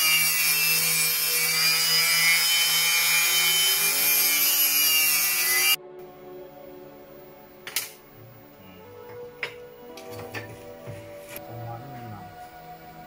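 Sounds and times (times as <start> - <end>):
angle grinder whining: 0.0 - 5.8.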